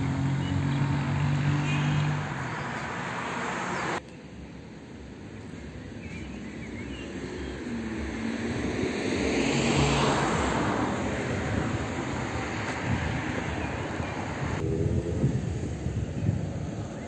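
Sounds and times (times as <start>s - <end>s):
vehicle passing by: 0.0s - 4.0s, 6.8s - 16.2s.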